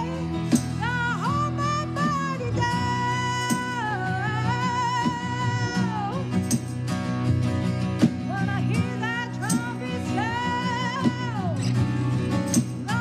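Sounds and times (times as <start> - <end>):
woman singing with vibrato: 0.0 - 6.4, 8.3 - 11.8
electric bass: 0.0 - 13.0
strummed acoustic guitars: 0.0 - 13.0.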